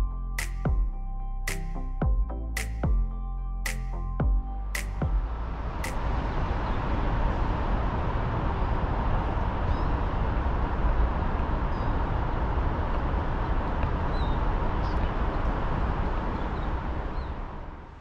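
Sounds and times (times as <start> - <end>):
distant traffic rumble: 4.8 - 18.0.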